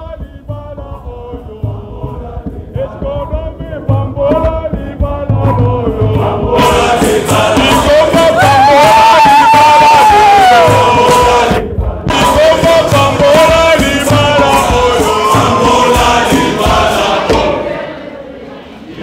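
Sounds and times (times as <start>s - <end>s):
low drum beats: 0.0s - 17.7s
male choir singing in harmony: 0.0s - 19.0s
people shouting: 8.2s - 11.4s.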